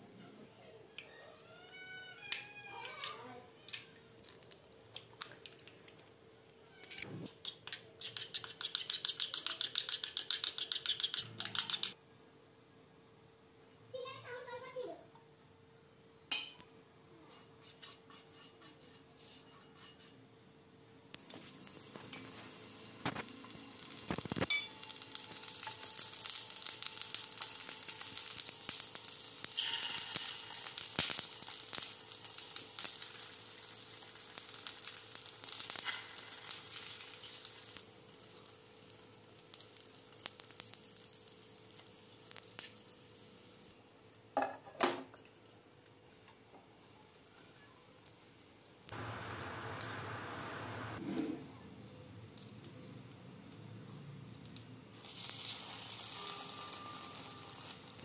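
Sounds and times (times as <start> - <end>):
oil sizzling in frying pan: 21.2 - 43.9, 55.0 - 58.0.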